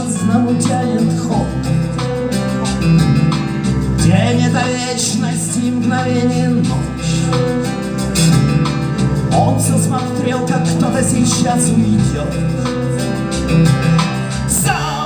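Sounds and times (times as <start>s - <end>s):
bass: 0.0s - 15.0s
electric guitar: 0.0s - 15.0s
steady drum beat: 0.0s - 15.0s.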